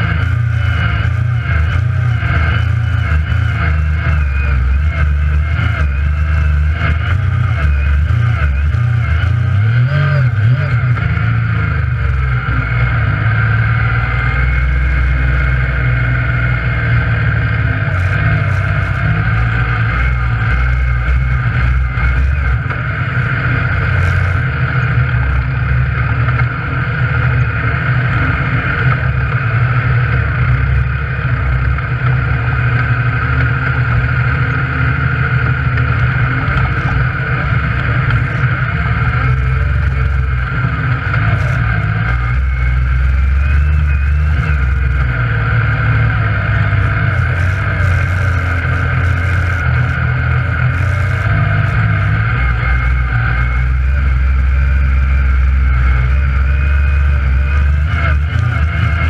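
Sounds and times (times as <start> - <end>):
engine running: 0.0 - 59.0
steady high whine: 0.0 - 59.0.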